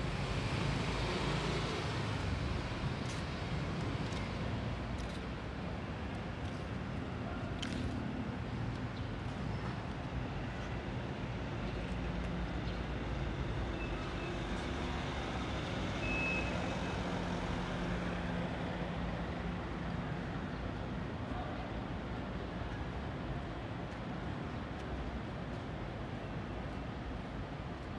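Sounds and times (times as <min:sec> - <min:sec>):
urban traffic noise: 0:00.0 - 0:27.9
faint high beeps: 0:16.0 - 0:16.9.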